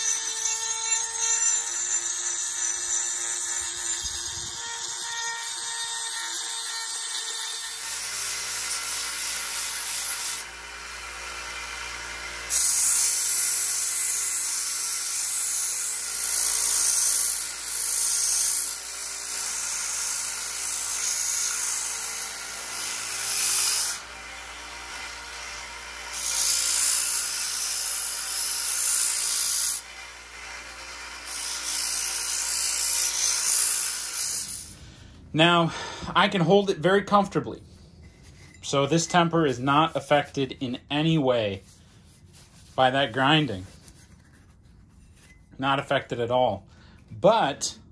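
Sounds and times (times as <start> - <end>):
belt sander grinding steel: 0.0 - 34.8.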